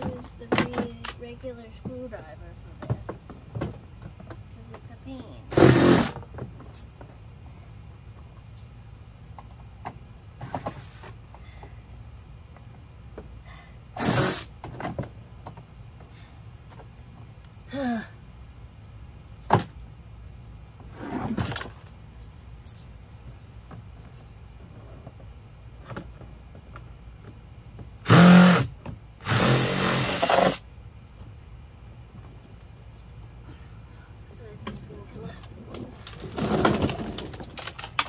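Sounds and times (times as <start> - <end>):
cordless drill whirring: 28.0 - 30.6.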